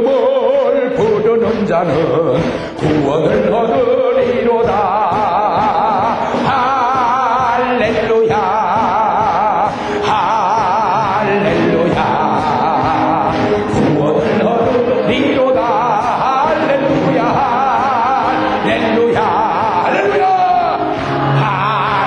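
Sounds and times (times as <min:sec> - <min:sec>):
congregation singing: 0:00.0 - 0:22.0
man singing into a microphone: 0:00.0 - 0:22.0
people clapping in time: 0:16.0 - 0:22.0.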